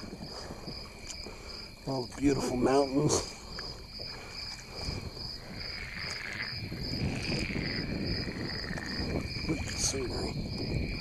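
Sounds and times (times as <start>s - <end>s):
paddle water splashing and lapping: 0.0s - 6.7s.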